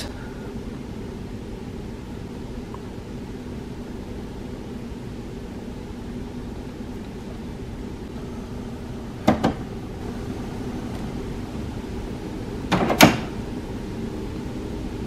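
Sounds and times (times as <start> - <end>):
steady low hum: 0.0 - 15.0
printer mechanical clacks: 9.2 - 9.8, 12.6 - 13.4.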